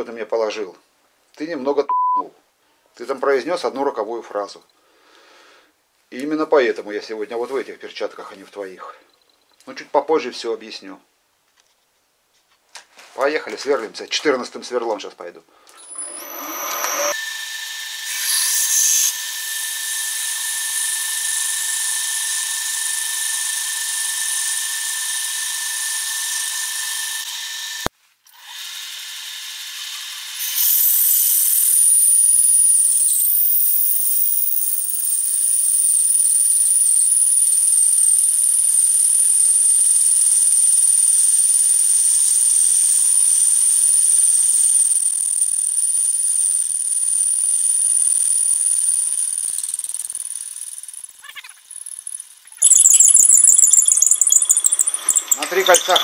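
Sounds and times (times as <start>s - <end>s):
drill whining while cutting: 15.7s - 56.0s
lathe running: 15.8s - 27.9s, 30.4s - 56.0s.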